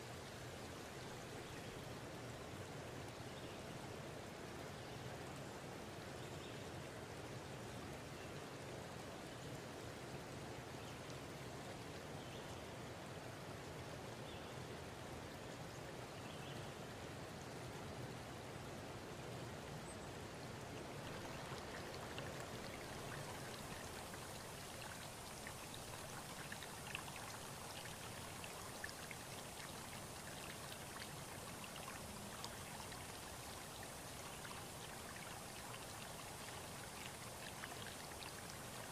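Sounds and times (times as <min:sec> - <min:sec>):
steady rushing hiss: 0:20.9 - 0:38.9.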